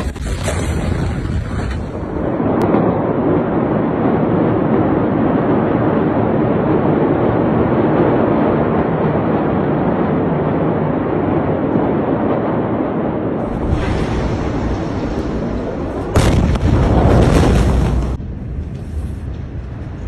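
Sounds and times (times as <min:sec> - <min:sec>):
loud rushing roar: 0:13.4 - 0:18.2.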